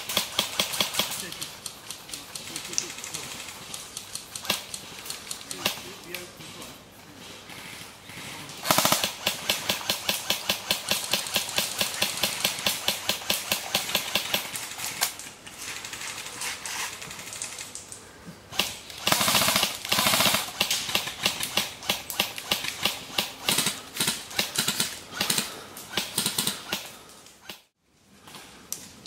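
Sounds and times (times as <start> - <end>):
airsoft rifle shots: 0.0 - 1.5, 5.5 - 6.2, 8.6 - 15.1, 18.5 - 27.7.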